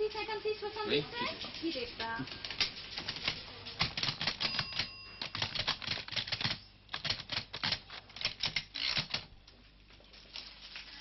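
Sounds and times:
typewriter keys clacking: 2.4s - 9.3s
typewriter bell ringing: 4.0s - 6.6s.

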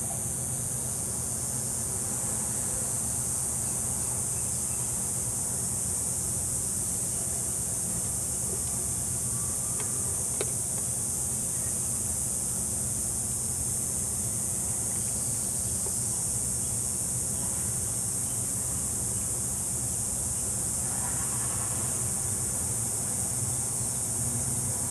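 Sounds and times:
high-pitched insect chorus: 0.0s - 24.9s.

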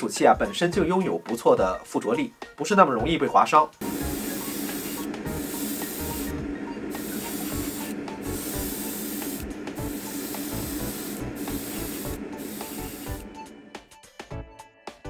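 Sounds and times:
airbrush spraying hiss: 3.8s - 13.6s
exhaust fan humming: 3.8s - 13.8s.

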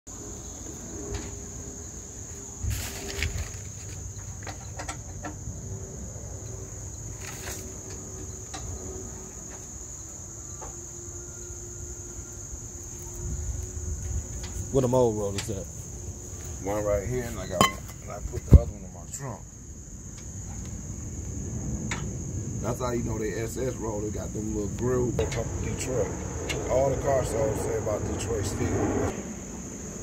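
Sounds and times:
insects trilling: 0.1s - 30.0s
knocks and rustles: 2.6s - 5.5s.

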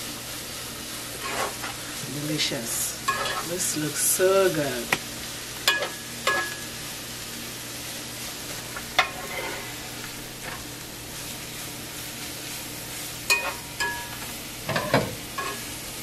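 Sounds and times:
food sizzling in a pot: 0.0s - 16.0s
spatula scraping a pot: 1.2s - 1.8s, 3.1s - 3.5s, 9.0s - 10.6s.

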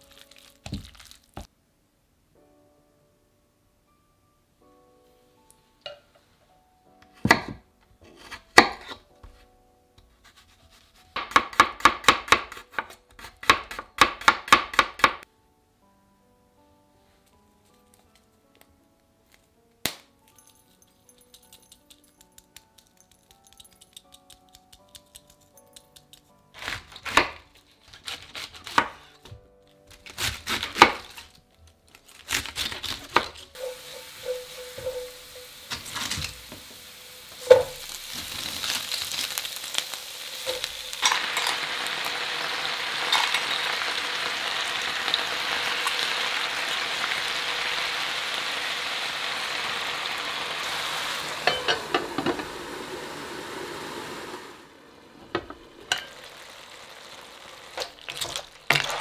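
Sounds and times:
vegetables sizzling in oil: 32.8s - 59.0s
glass lid clattering: 43.1s - 43.6s, 51.4s - 52.5s, 55.4s - 56.2s.

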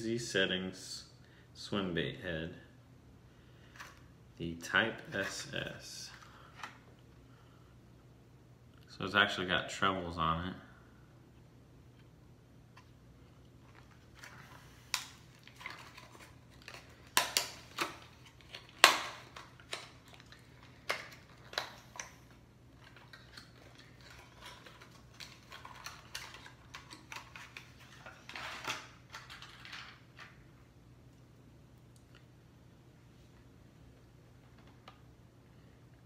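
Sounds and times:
plastic crinkling: 13.6s - 30.4s
plastic package clicking and snapping: 14.9s - 30.4s.

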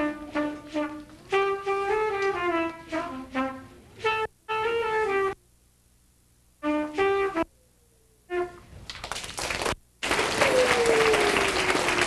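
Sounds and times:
trumpet short notes: 0.0s - 5.4s, 6.6s - 7.5s
audience applause: 8.9s - 12.0s.

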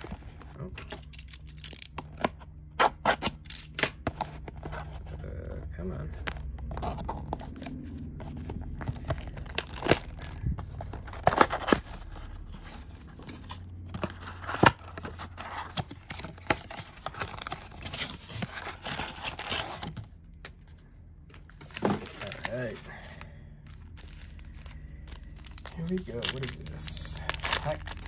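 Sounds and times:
card pack wrappers tearing: 0.0s - 5.0s, 8.4s - 20.1s, 21.5s - 28.0s.

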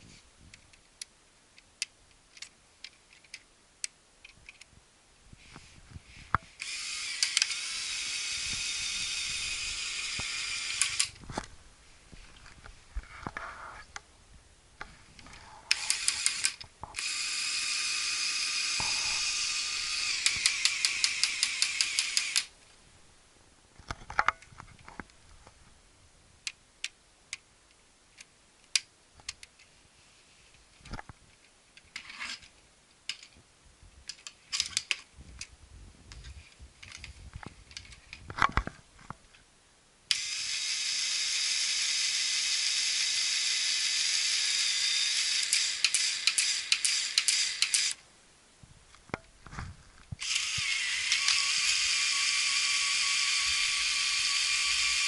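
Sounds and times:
plastic parts clicking: 0.5s - 4.7s, 33.1s - 33.4s, 34.1s - 35.5s, 36.8s - 39.2s
plastic gears whirring and clattering: 6.6s - 11.2s, 15.7s - 22.5s, 40.1s - 48.0s, 50.2s - 55.0s.

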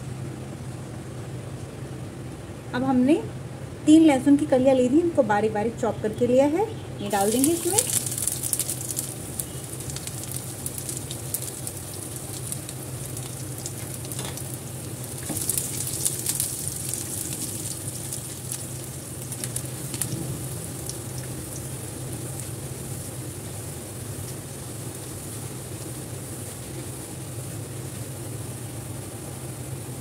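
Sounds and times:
spices sizzling in hot oil: 6.5s - 30.0s.

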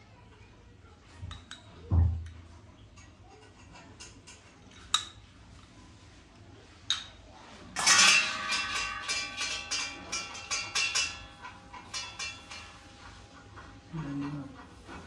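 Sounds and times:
metal utensils clattering: 6.9s - 15.0s
metal knocks: 7.8s - 13.8s
utensils clinking: 7.8s - 15.0s.

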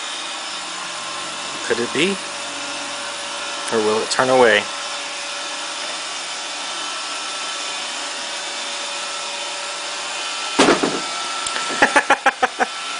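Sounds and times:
robot vacuum motor hum: 0.0s - 12.9s
loud knock: 10.6s - 11.1s.

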